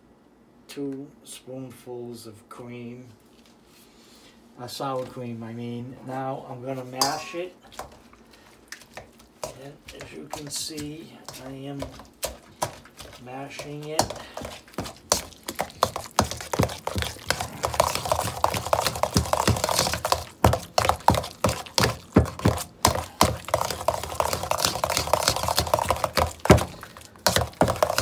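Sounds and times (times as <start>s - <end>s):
potato masher knocking a steel bowl: 7.0s - 7.4s, 9.4s - 28.0s.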